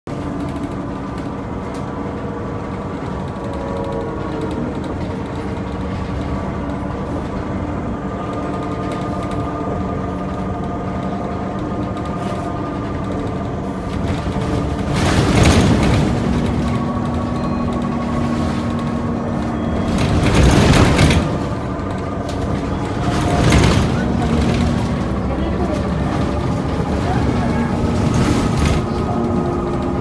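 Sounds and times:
bus engine hum and whine: 0:00.0 - 0:30.0
faint clicks and rattles: 0:00.1 - 0:07.5
road rumble: 0:00.1 - 0:30.0.

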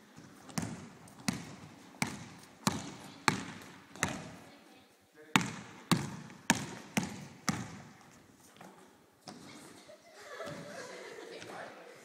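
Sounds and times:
basketball bouncing on wooden floor: 0:00.5 - 0:04.4, 0:05.4 - 0:09.5.

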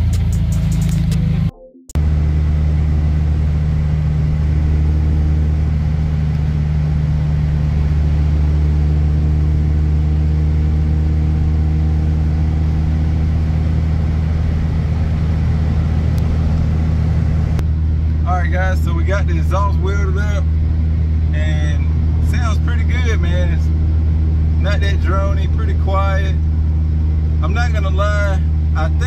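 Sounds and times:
car engine drone from cabin: 0:00.0 - 0:29.0.

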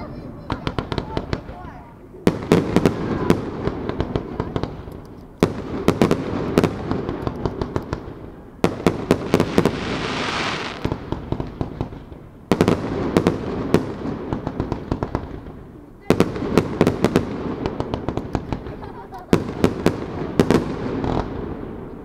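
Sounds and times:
firework bangs: 0:00.4 - 0:22.0
firework crackling pops: 0:00.4 - 0:22.0
firework rumble: 0:00.4 - 0:22.0
hissing crackle: 0:08.9 - 0:11.1.

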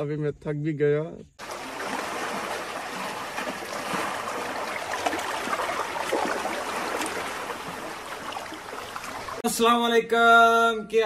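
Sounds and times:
running water rushing: 0:01.4 - 0:09.4.

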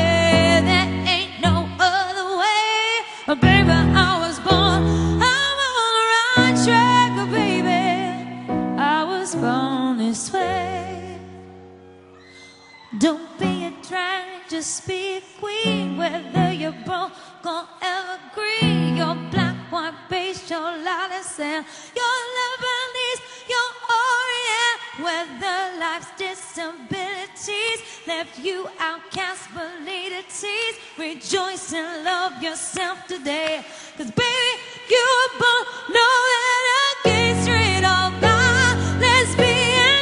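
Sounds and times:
grand piano accompaniment: 0:00.0 - 0:02.0, 0:03.4 - 0:05.7, 0:06.3 - 0:12.1, 0:15.6 - 0:16.9, 0:37.0 - 0:40.0
woman singing with vibrato: 0:00.0 - 0:11.6, 0:12.3 - 0:40.0.

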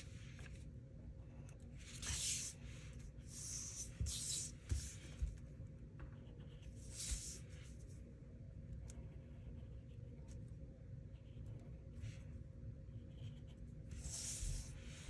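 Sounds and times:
marker rubbing across paper: 0:01.8 - 0:05.2, 0:06.2 - 0:07.8, 0:12.9 - 0:15.0.

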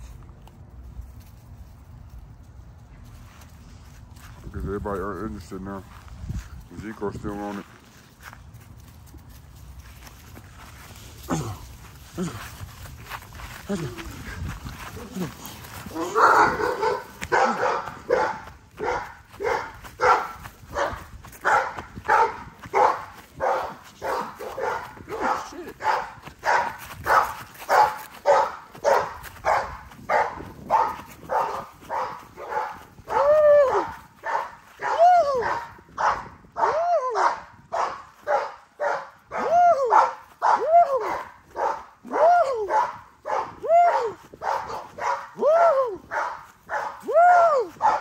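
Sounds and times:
puppies barking: 0:15.9 - 0:45.4, 0:46.1 - 0:47.0, 0:47.8 - 0:48.0.

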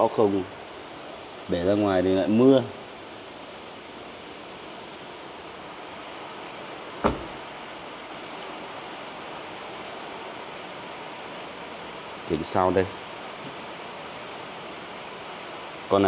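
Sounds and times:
sharp knock: 0:07.0 - 0:07.4.

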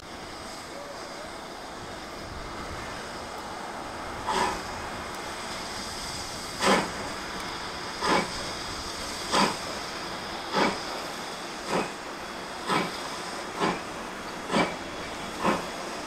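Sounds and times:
steam hissing: 0:00.0 - 0:16.0
steam locomotive chuffing: 0:00.0 - 0:16.0.

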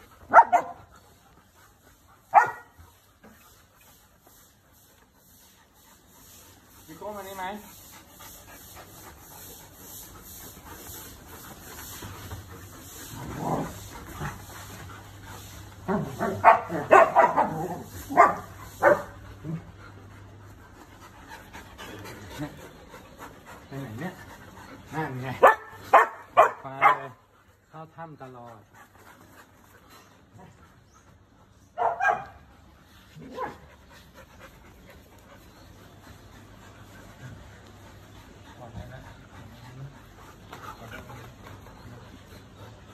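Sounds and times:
dogs barking and yipping: 0:00.0 - 0:03.6, 0:08.2 - 0:27.2, 0:31.6 - 0:42.9
dog barking: 0:00.3 - 0:00.8, 0:02.3 - 0:02.7, 0:16.2 - 0:19.1, 0:25.4 - 0:27.2, 0:31.8 - 0:32.4.

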